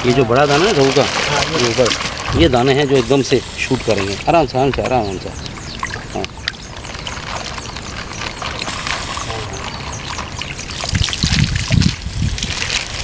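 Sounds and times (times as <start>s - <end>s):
water pouring and splashing: 0.0s - 13.0s.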